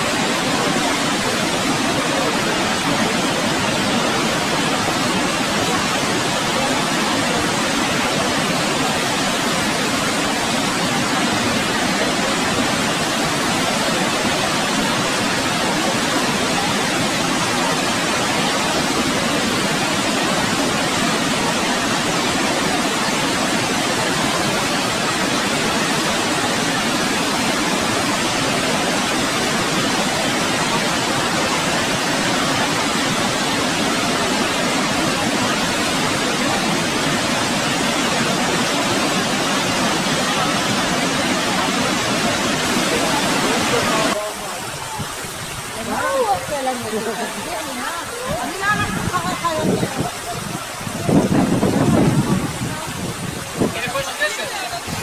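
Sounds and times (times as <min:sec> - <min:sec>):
waterfall roaring: 0:00.0 - 0:55.0.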